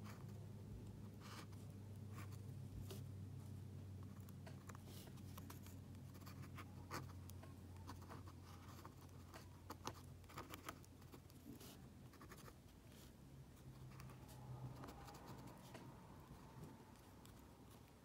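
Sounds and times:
low steady hum: 0.0s - 18.0s
pen nib scratching on paper: 4.0s - 18.0s.

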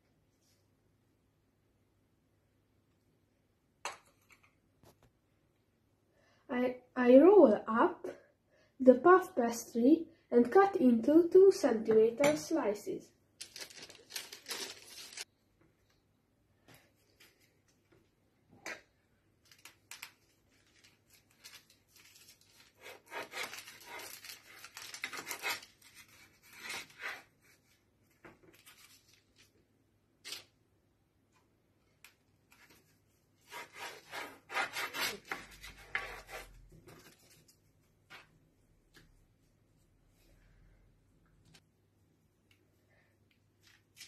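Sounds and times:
knife scraping on parchment paper: 22.1s - 27.6s, 33.4s - 36.6s
knife sawing through pastry: 22.6s - 24.6s, 33.4s - 36.5s.

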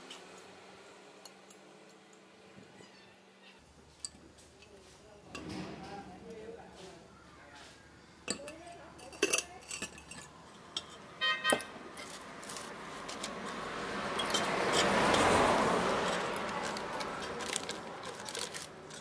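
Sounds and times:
metal parts clinking: 8.3s - 13.3s, 14.2s - 15.3s, 16.1s - 19.0s.

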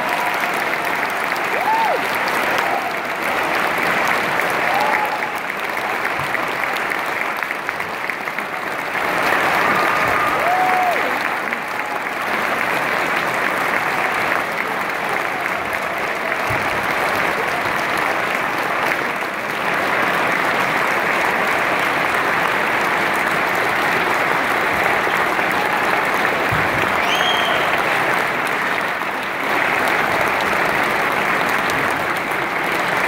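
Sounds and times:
large audience applauding: 0.0s - 33.0s.

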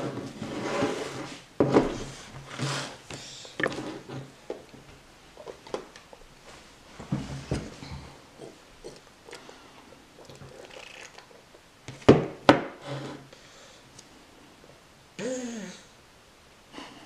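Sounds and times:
slurping through a straw: 8.4s - 11.6s
toddler grunting: 15.2s - 15.9s.

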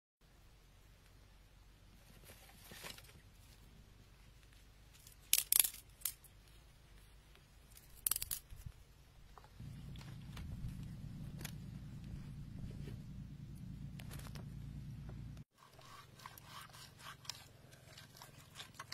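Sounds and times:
dry crackling: 4.4s - 18.9s
low steady hum: 8.8s - 15.5s.

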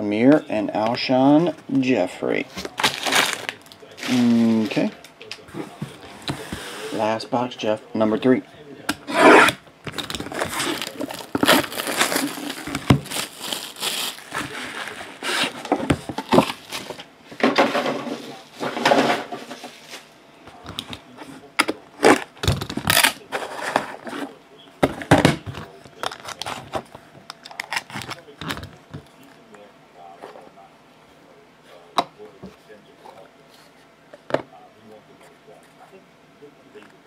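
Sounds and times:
plastic wrap tearing and crinkling: 2.6s - 4.8s, 9.9s - 15.6s, 27.4s - 28.7s.

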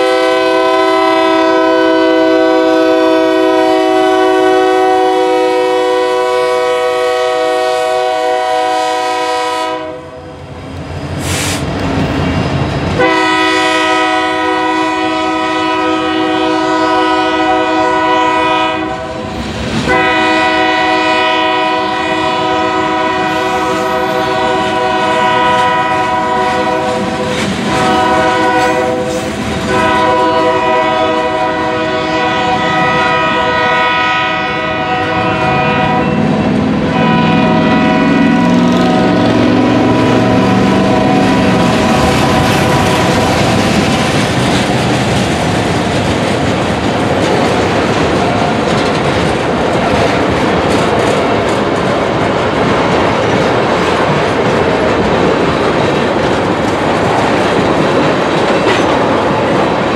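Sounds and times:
train horn blasts: 0.0s - 10.4s, 13.0s - 43.8s
wheel clickety-clack: 25.5s - 30.2s, 40.6s - 59.8s
freight cars rumbling past: 35.2s - 59.9s.

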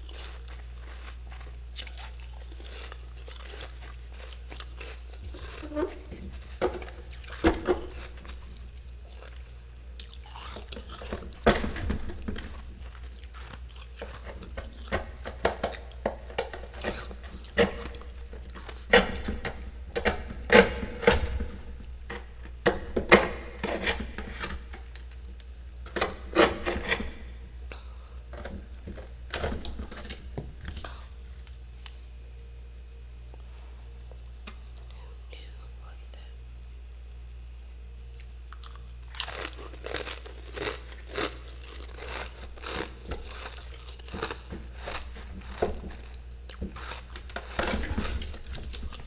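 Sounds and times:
low steady hum: 0.0s - 49.0s
metal spatula scraping frost: 23.6s - 24.6s.

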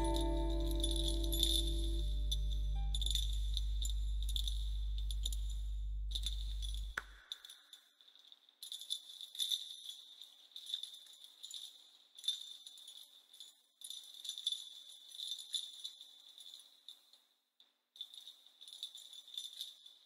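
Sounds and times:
low drone: 0.0s - 6.9s
jingle bells shaken softly: 0.0s - 20.0s.

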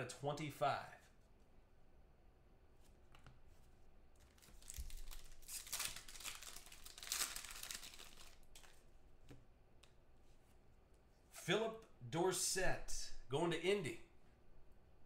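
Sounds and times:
foil wrapper tearing and crinkling: 4.3s - 8.8s.

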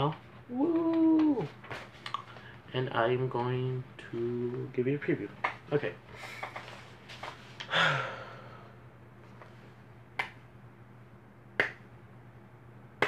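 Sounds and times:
finger snaps: 10.2s - 10.4s, 11.5s - 11.9s.

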